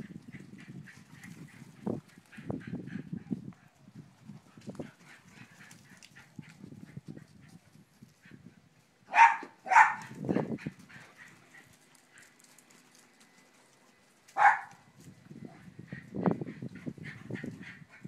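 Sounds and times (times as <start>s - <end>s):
small dog barking: 9.1s - 10.4s, 14.4s - 14.8s.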